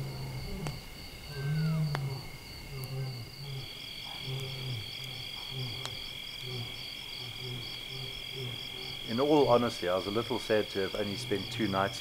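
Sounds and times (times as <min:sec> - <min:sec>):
lion roaring and grunting: 0:00.0 - 0:09.3
insects chirring: 0:00.0 - 0:12.0.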